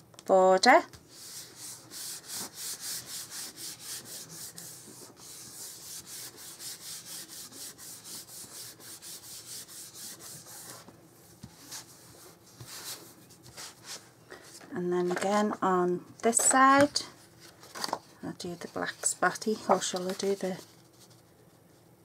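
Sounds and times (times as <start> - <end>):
rubbing strokes on paper: 1.1 - 14.0.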